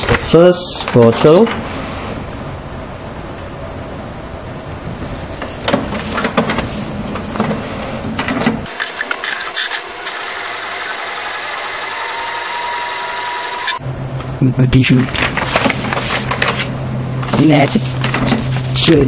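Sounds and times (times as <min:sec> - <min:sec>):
print head whirring: 0:08.6 - 0:13.8.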